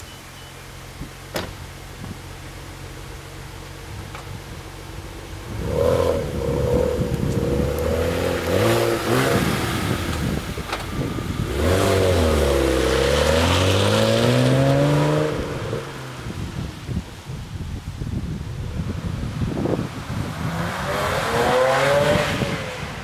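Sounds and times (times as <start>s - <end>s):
car engine revving and passing: 5.5s - 16.4s, 19.6s - 23.0s.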